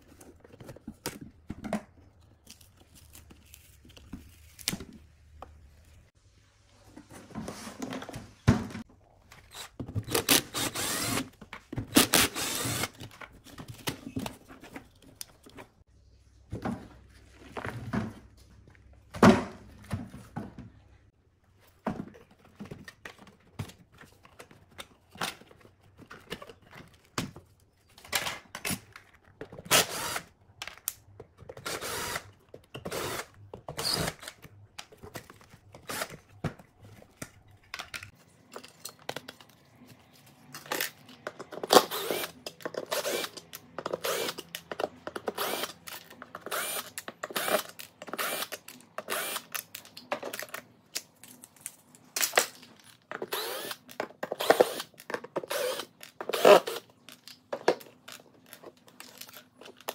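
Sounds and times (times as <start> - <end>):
cordless drill bursts: 10.1 - 11.3, 12.0 - 12.9, 29.7 - 30.2, 31.7 - 32.2.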